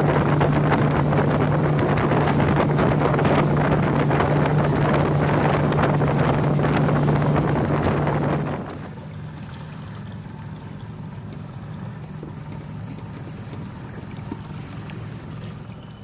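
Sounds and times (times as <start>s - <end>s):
boat motor humming: 0.0s - 16.0s
water washing around hull: 0.0s - 16.0s.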